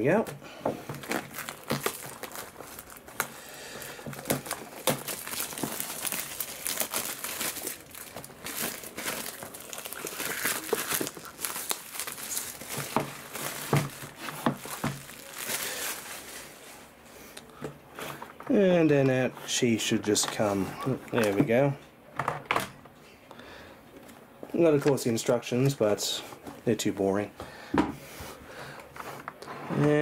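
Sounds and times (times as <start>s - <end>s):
plastic wrapping crinkling: 0.8s - 17.0s.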